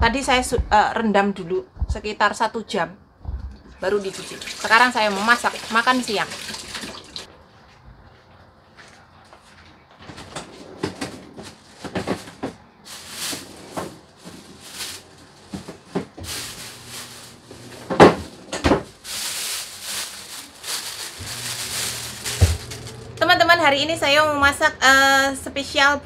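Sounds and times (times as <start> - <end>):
cupboard doors and pots clattering: 15.4 - 19.0.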